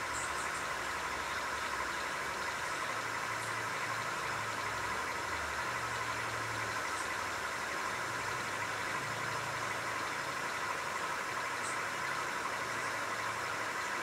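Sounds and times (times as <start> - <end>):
motor hum and hiss: 0.0 - 14.0.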